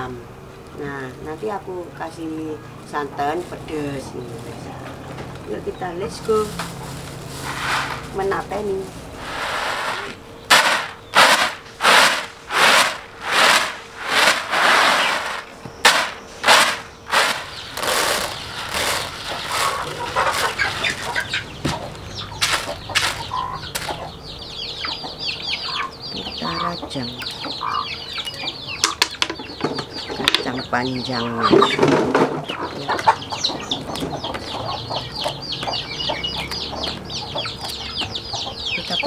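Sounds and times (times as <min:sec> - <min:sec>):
chickens clucking: 0:00.0 - 0:39.0
beans rattling on bamboo tray: 0:09.6 - 0:21.2, 0:22.4 - 0:23.2.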